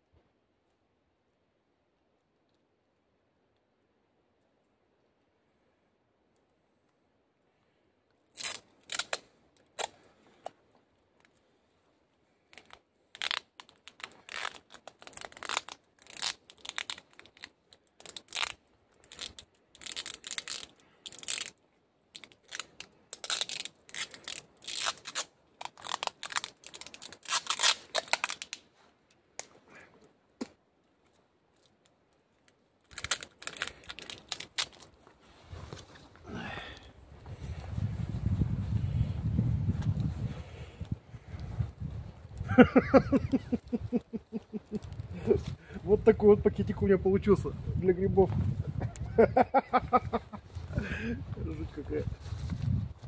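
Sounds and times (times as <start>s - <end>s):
rustling: 8.2s - 45.8s, 49.9s - 53.0s
sticky tape ripping off roll: 8.3s - 10.0s, 12.5s - 21.6s, 22.2s - 28.6s, 32.9s - 34.9s.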